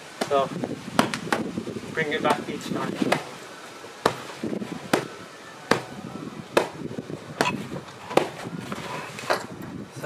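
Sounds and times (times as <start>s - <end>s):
fists punching sandbag: 4.0s - 6.0s, 6.6s - 8.5s.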